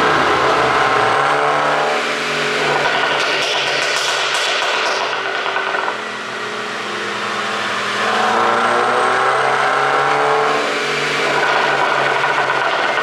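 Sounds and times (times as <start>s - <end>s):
car engine revving: 0.0s - 13.0s.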